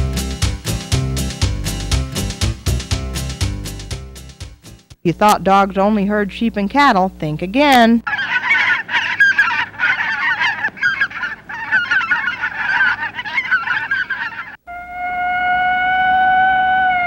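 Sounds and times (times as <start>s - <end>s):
ducks quacking: 8.0s - 14.6s
steady held tone: 14.6s - 17.0s.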